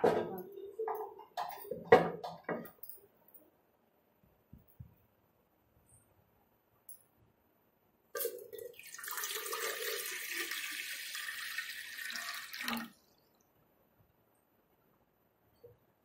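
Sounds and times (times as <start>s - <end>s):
water pouring into metal pot: 8.2s - 13.0s.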